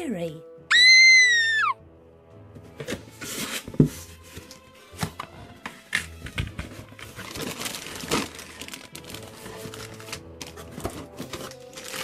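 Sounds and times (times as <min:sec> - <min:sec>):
plastic bags crinkling: 0:07.1 - 0:12.0.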